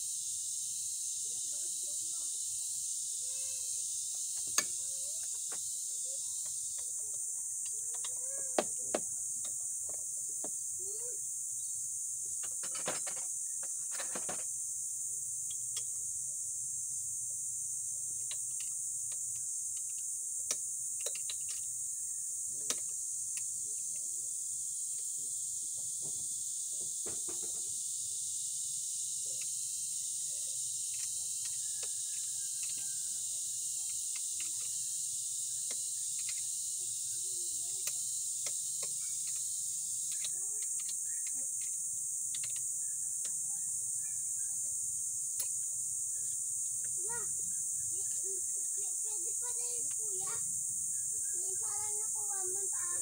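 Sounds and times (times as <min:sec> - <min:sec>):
high-pitched insect buzz: 0:00.0 - 0:53.0
clicks and knocks of tools: 0:18.2 - 0:21.7.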